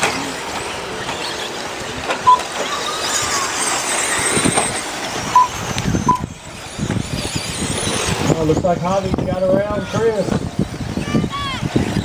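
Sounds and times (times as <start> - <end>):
rc truck motor whine: 0.0 - 11.0
short loud beeps: 2.2 - 2.4, 5.3 - 6.3.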